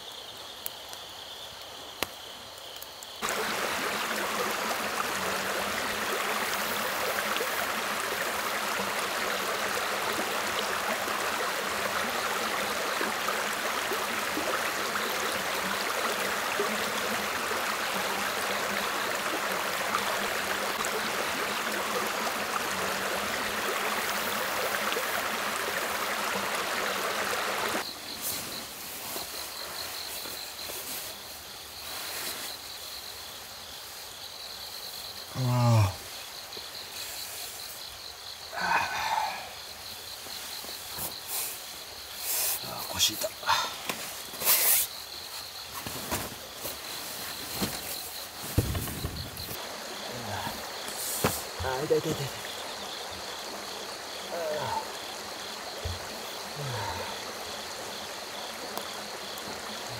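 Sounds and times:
crickets chirring: 0.0s - 59.9s
stream flowing over stones: 3.2s - 28.2s, 38.5s - 59.9s.

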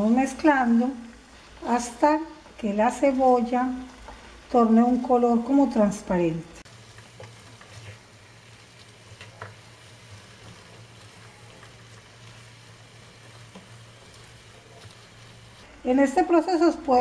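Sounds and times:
food sizzling in a frying pan: 0.0s - 17.0s
stirring clicks against pan: 9.1s - 9.6s.

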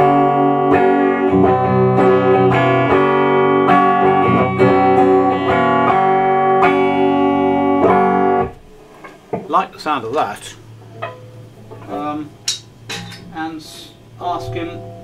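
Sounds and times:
clean electric guitar: 0.0s - 9.2s.

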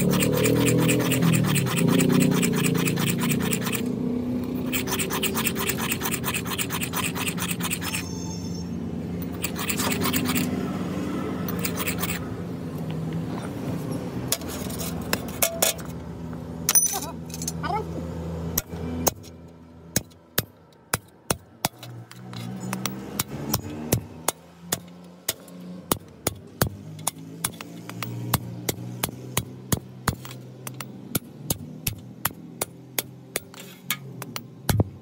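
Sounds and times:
blade scraping on stone: 0.0s - 8.6s, 9.2s - 10.8s, 11.4s - 12.3s.

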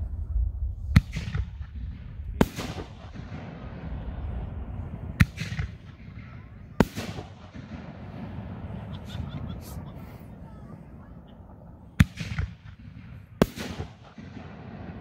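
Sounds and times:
firework shells firing: 5.1s - 9.9s, 11.9s - 15.0s.

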